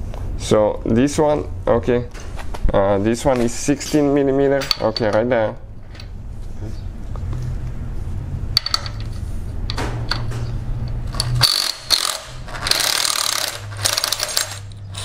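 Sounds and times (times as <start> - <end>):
steady low hum: 0.0 - 15.0
cordless ratchet clicking and whirring: 10.1 - 15.0.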